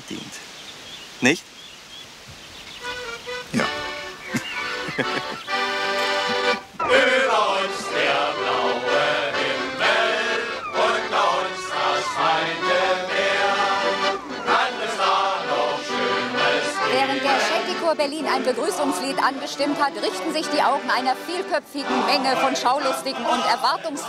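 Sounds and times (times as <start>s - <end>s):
accordion: 2.8s - 24.0s
men's choir singing: 4.4s - 24.0s.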